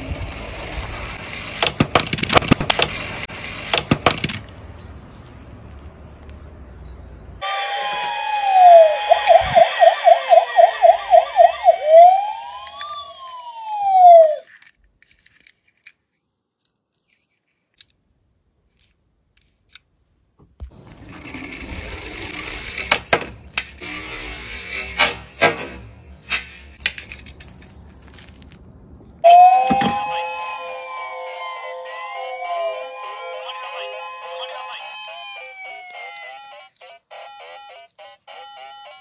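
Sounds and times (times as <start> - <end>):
toy car rolling on plywood: 0.0 - 4.6, 20.7 - 28.5
police siren wailing: 7.4 - 14.5, 29.2 - 39.0.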